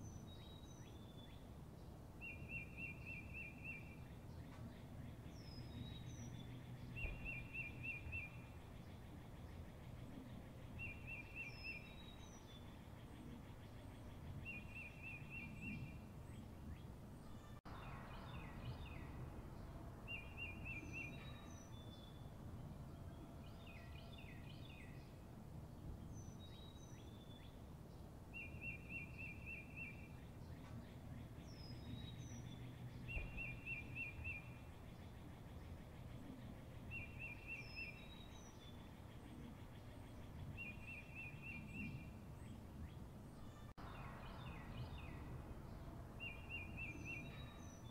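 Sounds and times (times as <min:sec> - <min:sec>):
birds chirping: 0:00.0 - 0:25.2, 0:25.8 - 0:47.9
low steady rumble: 0:15.8 - 0:20.6.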